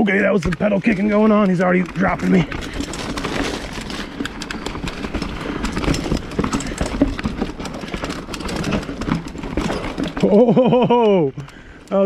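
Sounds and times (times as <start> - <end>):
bike rattling over bumps: 0.0 - 12.0
bike tyres rumbling on dirt trail: 0.0 - 12.0.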